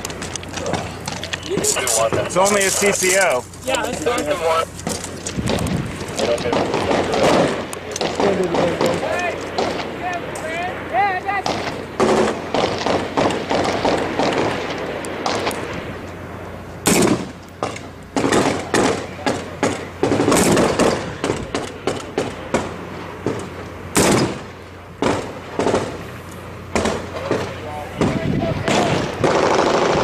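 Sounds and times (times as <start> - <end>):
gunshots: 4.8 - 10.0, 11.4 - 15.8, 16.8 - 26.1, 26.7 - 30.0.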